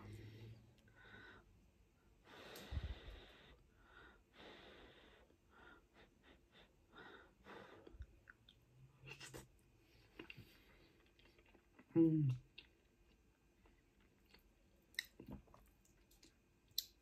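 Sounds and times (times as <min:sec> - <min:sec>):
faint nasal breathing: 0:02.2 - 0:08.0
wet mouth clicks while chewing: 0:12.5 - 0:17.0.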